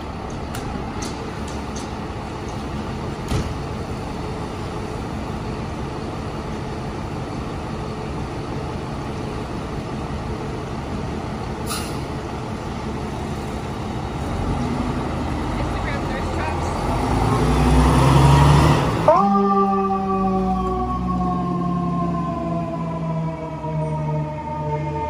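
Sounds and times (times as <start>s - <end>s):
diesel engine running: 0.0s - 24.6s
air brakes hissing: 11.6s - 12.2s.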